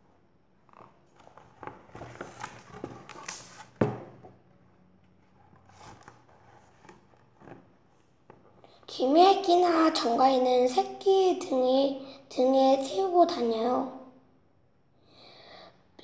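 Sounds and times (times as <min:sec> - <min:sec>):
book handling rustles and taps: 0:00.7 - 0:04.4, 0:05.1 - 0:08.6.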